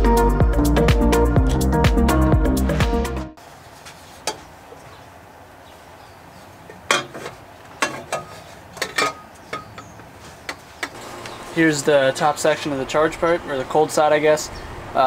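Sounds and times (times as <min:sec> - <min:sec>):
metal pipe clinking and knocking: 0:06.9 - 0:09.9.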